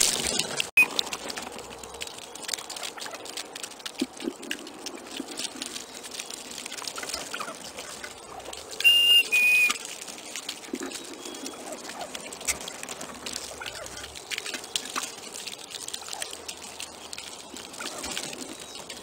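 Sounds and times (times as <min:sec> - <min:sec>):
turkeys pecking seed: 0:00.1 - 0:19.0
whistle-like tones: 0:08.8 - 0:09.8.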